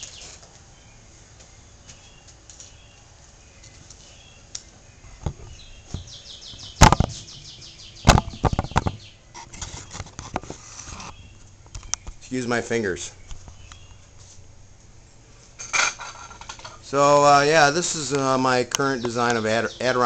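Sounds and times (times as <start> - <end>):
bird trilling: 5.4 - 9.2
loud knocks: 6.7 - 7.2, 8.0 - 9.1
rattle of small knocks: 15.6 - 16.8.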